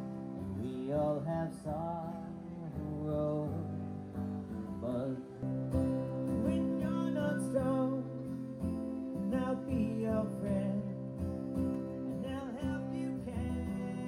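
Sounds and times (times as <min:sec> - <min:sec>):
acoustic guitar strumming: 0:00.0 - 0:14.0
man singing: 0:00.4 - 0:04.0, 0:04.7 - 0:05.4, 0:06.2 - 0:08.3, 0:09.0 - 0:11.3, 0:12.0 - 0:14.0.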